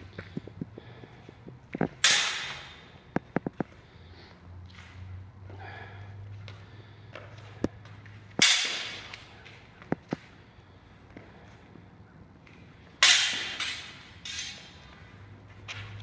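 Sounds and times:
sword blades clashing: 2.0 - 2.8, 8.4 - 9.2, 13.0 - 14.8.

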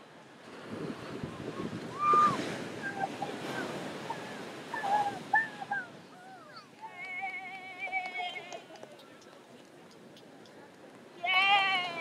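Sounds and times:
ocean surf washing in: 0.0 - 7.7.

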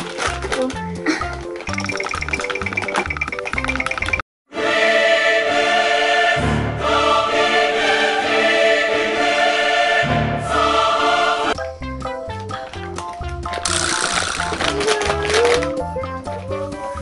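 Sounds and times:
choir singing sustained chord: 4.5 - 11.6.

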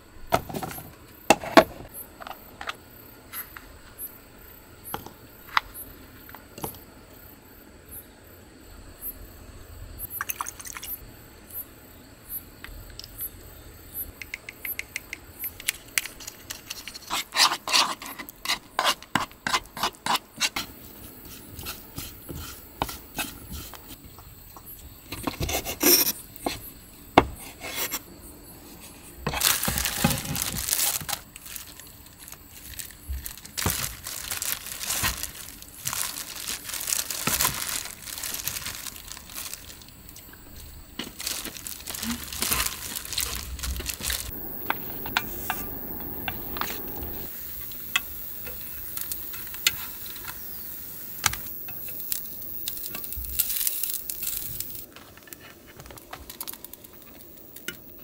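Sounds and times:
gloved hands crinkling and squelching: 29.4 - 45.0.

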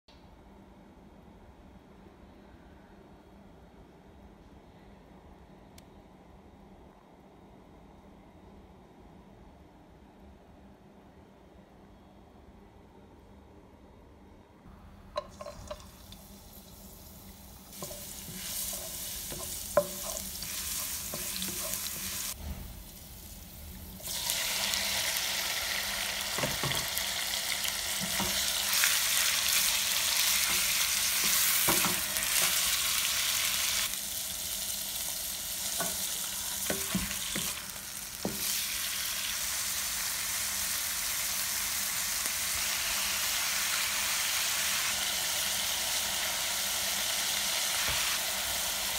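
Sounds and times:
seafood sizzling in hot oil: 15.3 - 48.9.

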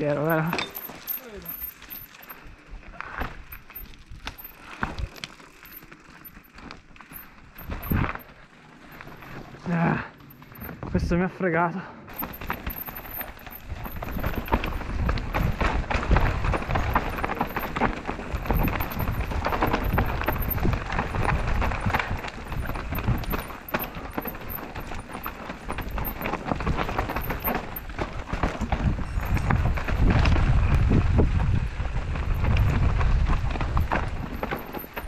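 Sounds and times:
tyres crunching over stones: 0.0 - 11.1, 12.1 - 35.0
bike clattering and rattling: 0.0 - 35.0
wind rumble on microphone: 7.6 - 8.2, 12.3 - 35.0.

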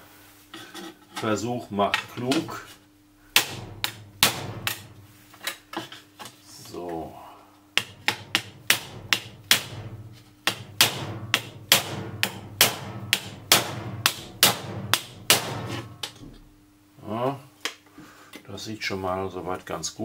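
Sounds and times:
rubber mallet striking sheet metal: 3.3 - 5.0, 7.8 - 16.3.

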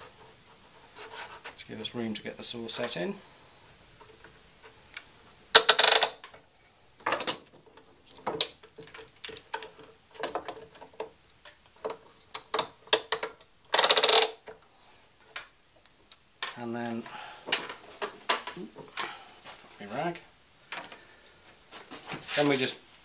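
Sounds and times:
clicks and knocks of vise: 7.0 - 14.6.

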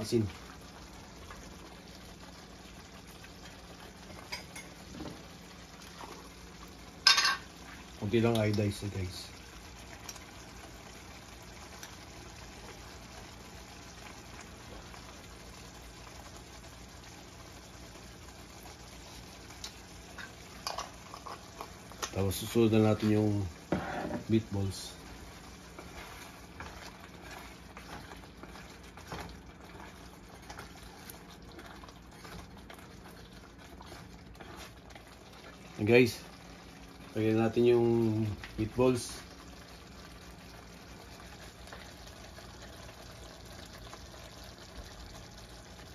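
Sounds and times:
sauce bubbling in a pan: 0.0 - 45.9.

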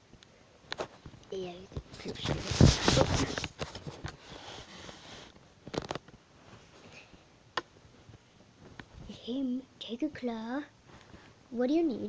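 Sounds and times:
plush toys rustling on fabric: 0.8 - 6.8.

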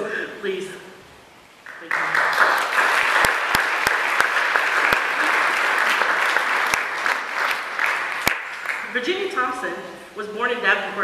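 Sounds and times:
audience applauding: 1.7 - 9.0
sharp claps: 1.7 - 9.0.

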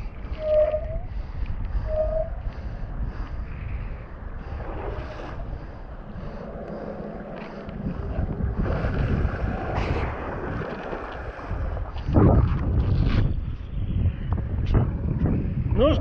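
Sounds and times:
wind buffeting microphone: 0.0 - 16.0
water rushing and splashing: 4.4 - 12.9.

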